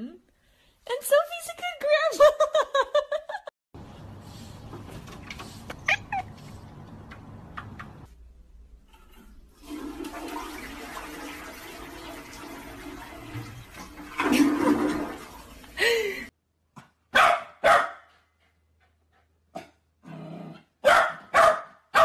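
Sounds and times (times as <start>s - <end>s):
toilet flushing: 9.0s - 16.3s.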